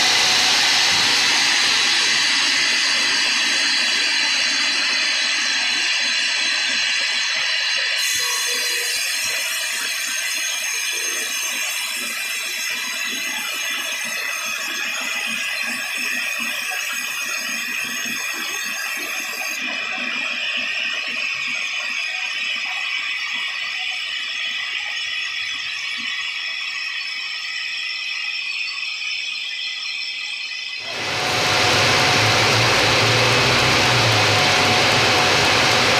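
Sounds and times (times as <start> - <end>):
band saw cutting log: 30.8 - 35.9.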